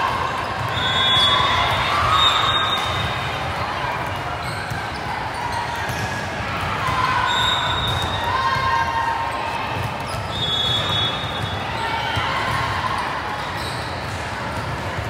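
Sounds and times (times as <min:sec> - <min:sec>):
balls bouncing and struck in a hall: 0:00.0 - 0:15.0
shoe squeaks: 0:10.1 - 0:11.5, 0:13.5 - 0:14.0.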